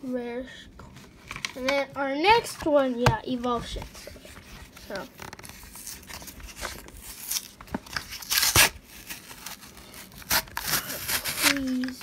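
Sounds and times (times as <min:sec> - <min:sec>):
foil wrapper crinkling: 0:04.9 - 0:12.0.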